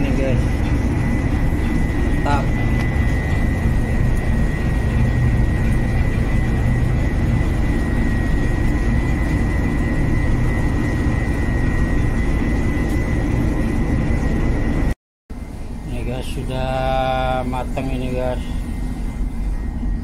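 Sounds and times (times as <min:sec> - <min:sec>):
gas burner rushing: 0:00.0 - 0:14.3.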